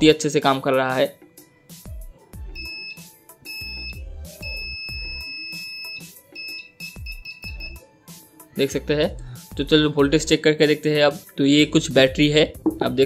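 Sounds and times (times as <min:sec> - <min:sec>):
multimeter continuity beep: 0:02.6 - 0:07.8.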